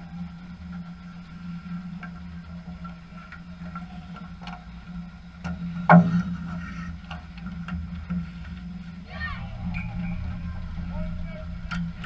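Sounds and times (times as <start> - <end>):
steady low hum: 0.0 - 12.0
faint clicks and knocks: 0.2 - 9.0.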